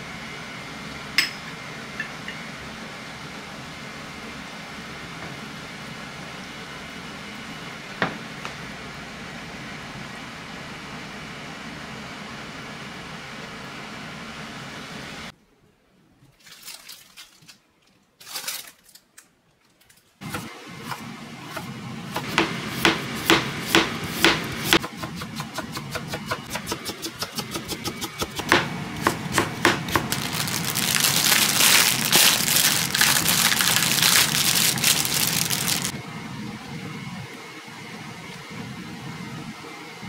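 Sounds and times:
steady hum: 0:20.2 - 0:40.0
knife chopping on cutting board: 0:20.3 - 0:30.1.

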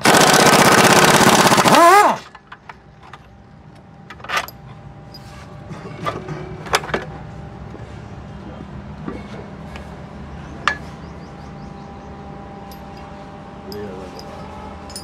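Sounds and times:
pneumatic impact wrench: 0:00.0 - 0:02.4.

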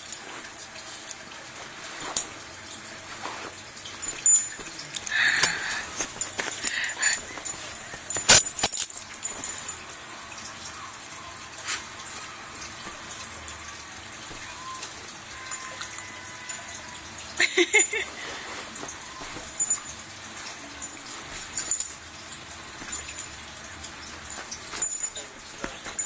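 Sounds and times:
dogs scuffling: 0:00.0 - 0:09.8, 0:18.2 - 0:26.0.

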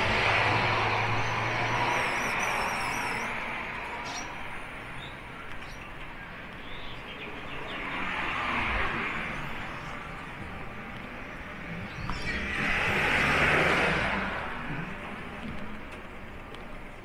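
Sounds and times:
vehicles passing: 0:00.0 - 0:17.0
small birds chirping: 0:01.1 - 0:12.9.

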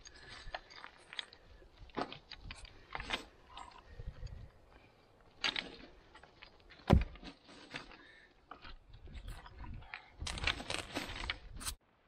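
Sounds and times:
stones knocking and scraping: 0:05.4 - 0:11.8.

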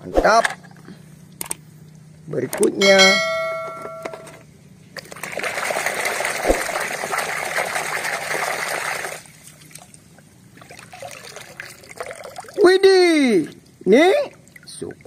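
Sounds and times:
water splashing in a basin: 0:05.0 - 0:15.0
faint water trickle: 0:09.1 - 0:15.0.

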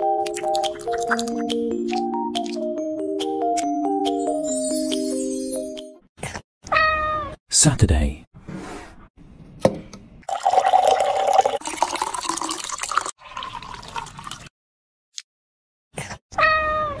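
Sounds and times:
milk pouring into a glass: 0:10.3 - 0:14.5.

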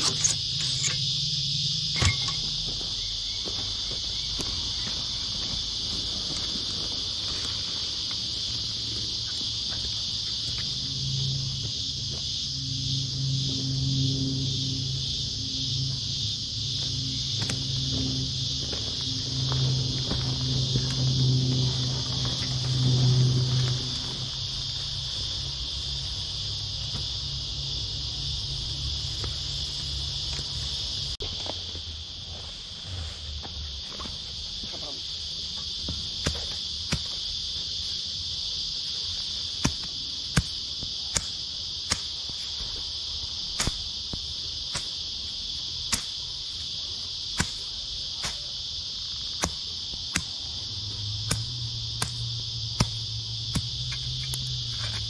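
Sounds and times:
digging tool striking ground: 0:00.0 - 0:01.0, 0:01.9 - 0:02.9, 0:35.8 - 0:37.3, 0:39.6 - 0:42.4, 0:43.5 - 0:45.1, 0:45.9 - 0:46.3, 0:47.3 - 0:48.6, 0:49.2 - 0:50.5, 0:51.2 - 0:55.0
high-pitched insect chorus: 0:00.0 - 0:55.0.

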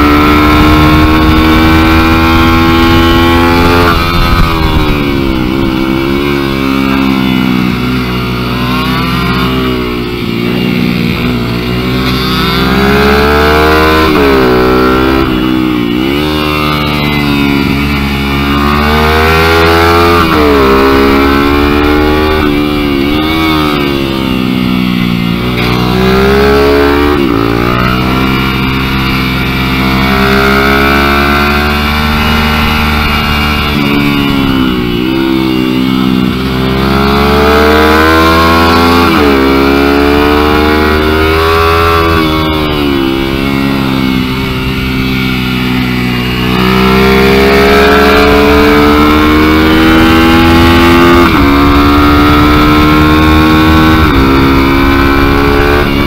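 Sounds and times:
mini-bike engine racing: 0:00.0 - 0:56.0.

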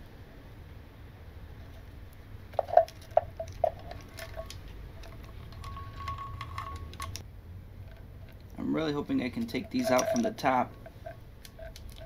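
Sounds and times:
metal engine parts clinking: 0:02.5 - 0:07.2, 0:09.2 - 0:12.0.

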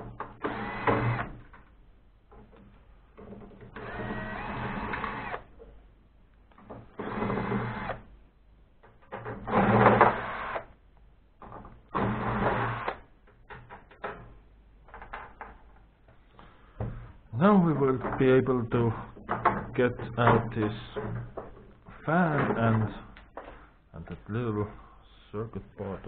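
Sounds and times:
power drill bursts: 0:00.3 - 0:01.4, 0:03.7 - 0:05.5, 0:07.0 - 0:08.0, 0:09.5 - 0:10.7, 0:12.0 - 0:13.0.

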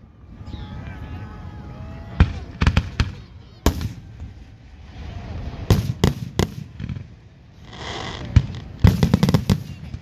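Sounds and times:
fireworks bursting: 0:02.2 - 0:10.0.

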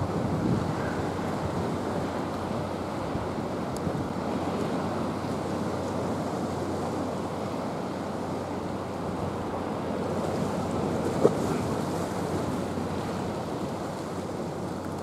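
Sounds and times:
wind on microphone: 0:00.0 - 0:04.4
sea surf washing against rocks: 0:00.0 - 0:15.0.

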